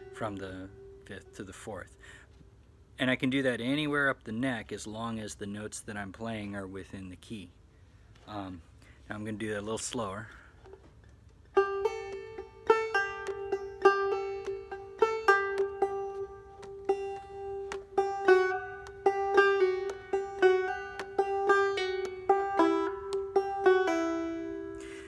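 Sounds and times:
high banjo drone note: 0:00.0 - 0:01.4, 0:11.6 - 0:24.9
banjo plucked notes: 0:00.0 - 0:01.7, 0:10.7 - 0:25.0.

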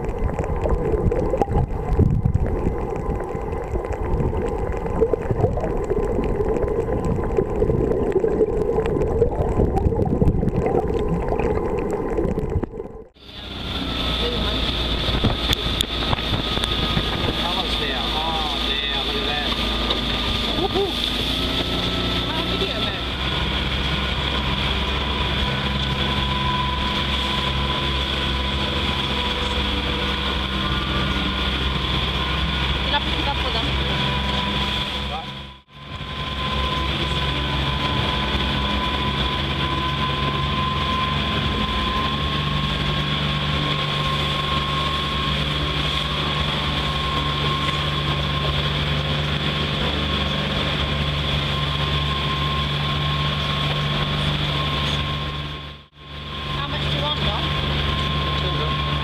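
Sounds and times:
faint underwater clicks: 0:00.0 - 0:13.2, 0:15.1 - 0:17.4
motorboat engine drone: 0:00.0 - 0:59.0
muffled underwater rushing: 0:00.0 - 0:59.0
wind: 0:00.0 - 0:59.0.

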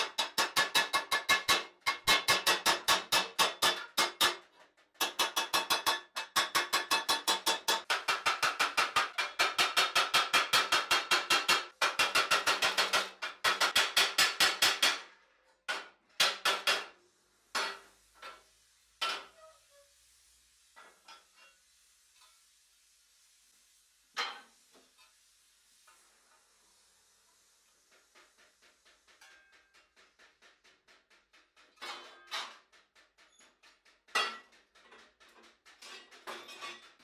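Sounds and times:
metal knocks and clanks: 0:27.9 - 0:37.0.

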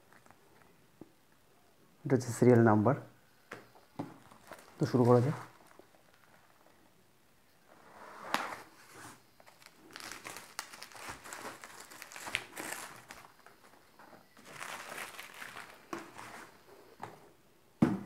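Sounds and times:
bubble wrap crinkling: 0:00.0 - 0:00.7, 0:04.1 - 0:06.8, 0:08.5 - 0:16.6.

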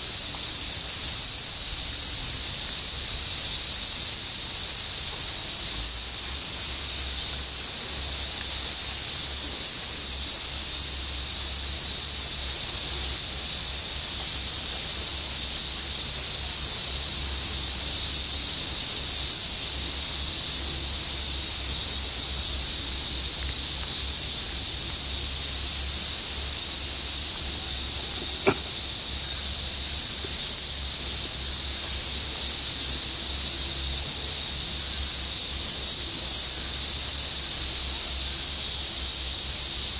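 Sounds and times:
cicada chorus hissing drone: 0:00.0 - 0:39.9
sharp click: 0:28.2 - 0:28.8.

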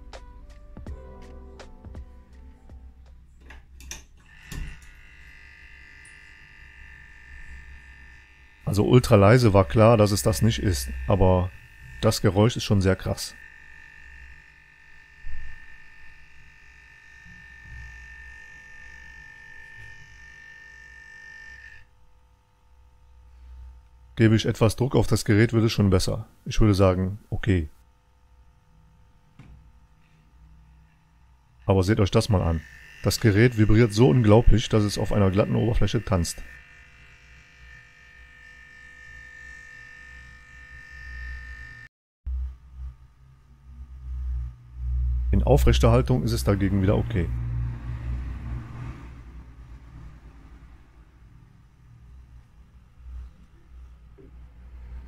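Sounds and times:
low hum: 0:00.0 - 0:55.0
air pump buzzing: 0:04.2 - 0:22.2, 0:30.9 - 0:41.9.

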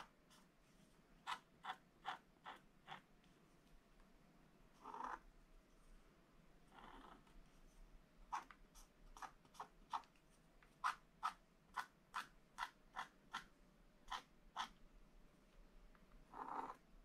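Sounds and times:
wooden stylus scratching paper: 0:08.3 - 0:10.1.

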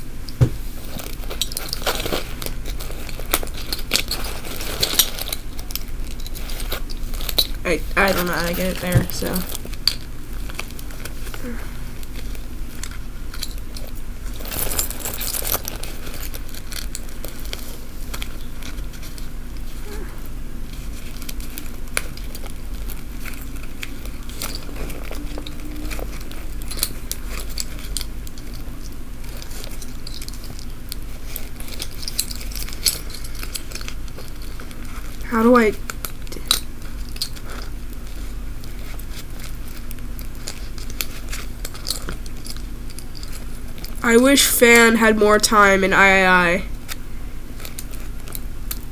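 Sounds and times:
steady low hum: 0:00.0 - 0:48.9
small clicks and rustles of hands: 0:00.2 - 0:20.1, 0:20.7 - 0:44.0, 0:46.7 - 0:48.9
metal keyrings clinking: 0:12.8 - 0:17.1, 0:31.3 - 0:34.9.

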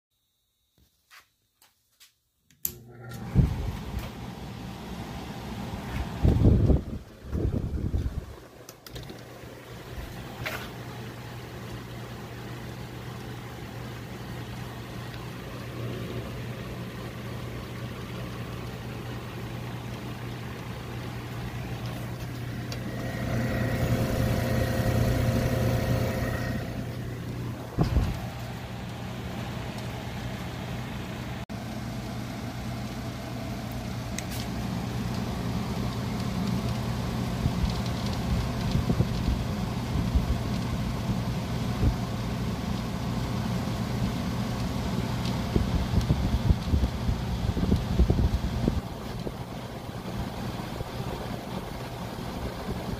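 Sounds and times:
air conditioner humming: 0:02.0 - 0:52.9
blower air rush: 0:02.8 - 0:10.9, 0:21.5 - 0:30.2
air buffeting microphone: 0:03.2 - 0:04.2, 0:05.7 - 0:08.6, 0:21.9 - 0:28.5, 0:45.4 - 0:52.9.

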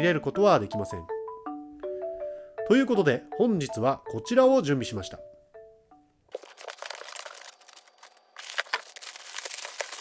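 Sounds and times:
xylophone jingle notes: 0:00.0 - 0:06.0
plastic wrapping crinkling: 0:06.3 - 0:10.0.

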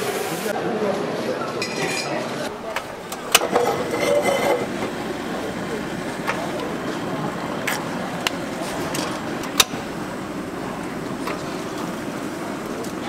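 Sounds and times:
gas burners: 0:02.4 - 0:13.0
cookware clicking: 0:02.6 - 0:06.8, 0:07.6 - 0:10.0, 0:10.8 - 0:11.9.

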